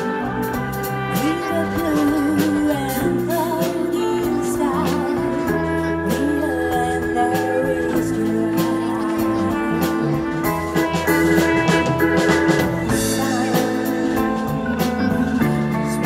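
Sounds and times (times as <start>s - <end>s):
drum kit with cymbals: 0.0s - 16.0s
live band playing: 0.0s - 16.0s
woman singing: 1.0s - 10.3s, 12.8s - 16.0s.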